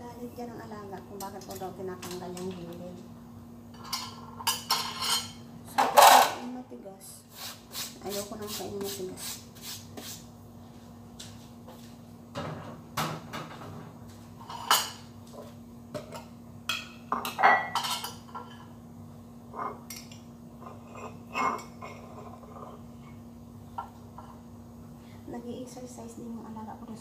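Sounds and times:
faint steady hum: 0:00.0 - 0:27.0
dishes and cutlery clinking: 0:03.8 - 0:06.4, 0:14.4 - 0:18.7, 0:19.5 - 0:22.8.

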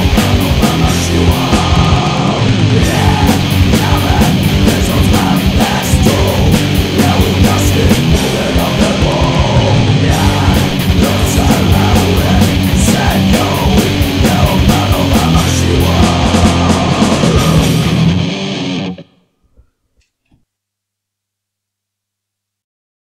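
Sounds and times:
drums and cymbals: 0:00.0 - 0:18.2
bass guitar: 0:00.0 - 0:19.2
distorted electric guitar: 0:00.0 - 0:19.3.

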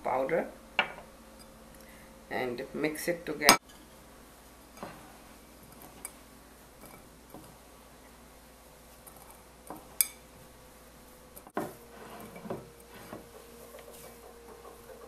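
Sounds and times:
hands kneading in a glass bowl: 0:03.6 - 0:15.0.

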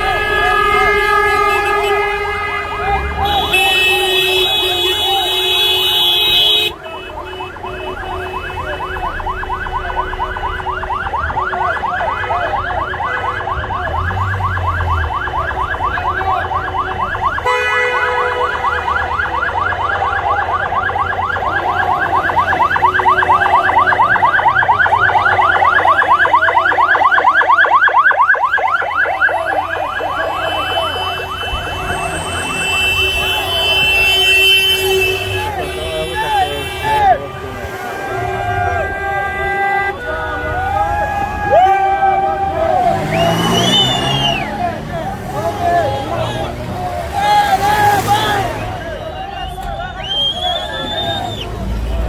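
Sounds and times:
steady horn-like tones: 0:00.0 - 0:09.8, 0:16.9 - 0:19.0, 0:30.0 - 0:52.0.

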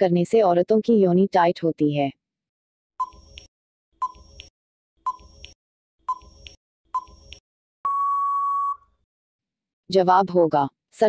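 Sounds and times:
short timer beeps: 0:05.1 - 0:08.8
long steady beep: 0:07.8 - 0:08.9.

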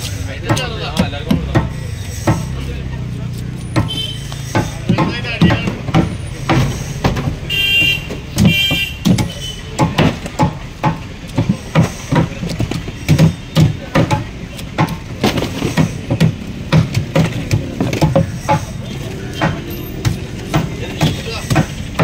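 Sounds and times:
knife chopping fish: 0:00.4 - 0:04.0.

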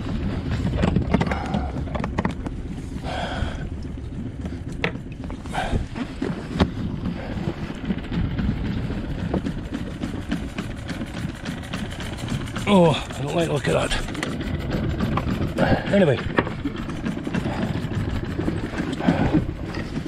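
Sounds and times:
wind rumbling on microphone: 0:00.0 - 0:20.0.

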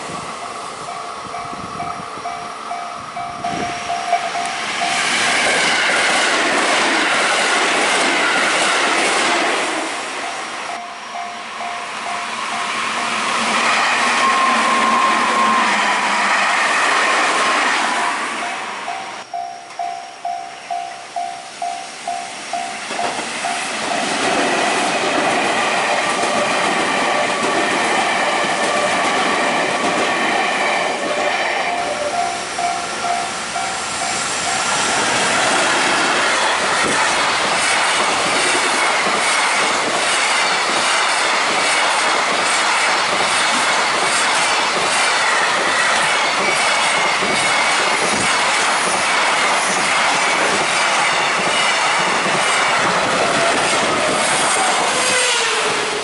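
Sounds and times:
electric train whining past: 0:00.0 - 0:56.0
wheel squeal: 0:12.4 - 0:17.0
train wheels clattering over rail joints: 0:34.8 - 0:56.0.

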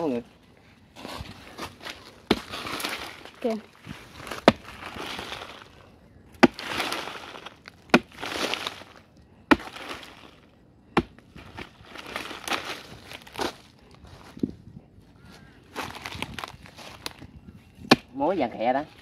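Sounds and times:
digging tool striking hard earth: 0:01.2 - 0:13.6, 0:17.8 - 0:18.1
crumbling earth falling: 0:01.6 - 0:13.7.

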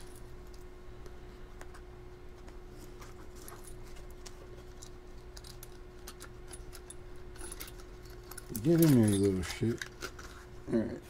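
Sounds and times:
steady low hum: 0:00.0 - 0:11.0
padlocks and keys clicking: 0:04.8 - 0:10.0.

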